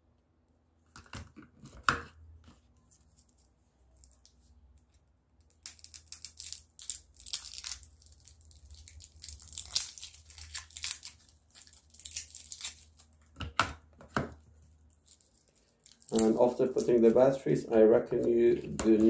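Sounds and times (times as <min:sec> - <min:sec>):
plastic wrapping crinkling and tearing: 0:05.4 - 0:13.4, 0:14.4 - 0:17.4.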